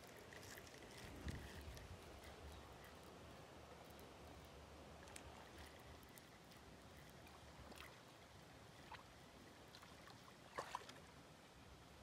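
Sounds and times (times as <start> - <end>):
small ticks: 0.0 - 8.0
faint water sounds: 0.0 - 12.0.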